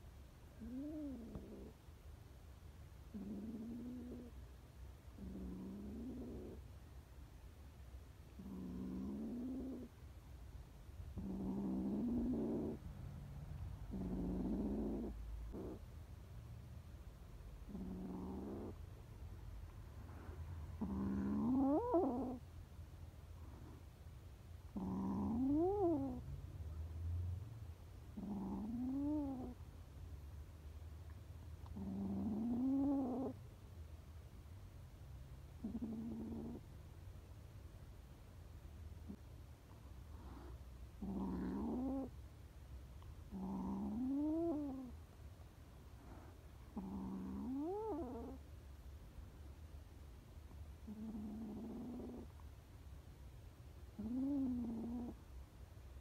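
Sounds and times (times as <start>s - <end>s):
kitten growling: 0.5s - 1.8s, 3.1s - 4.4s, 5.2s - 6.7s, 8.3s - 10.0s, 11.1s - 15.9s, 17.6s - 19.0s, 20.0s - 22.4s, 24.7s - 26.3s, 28.1s - 29.6s, 31.6s - 33.4s, 35.6s - 36.7s, 40.1s - 42.2s, 43.3s - 45.0s, 46.0s - 48.4s, 50.8s - 52.4s, 53.8s - 55.2s.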